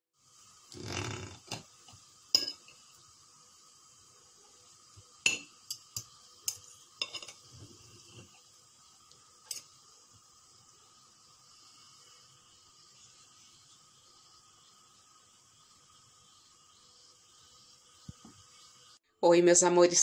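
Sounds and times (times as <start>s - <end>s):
cutlery clinking on a plate: 2.4s - 2.7s, 5.3s - 7.5s.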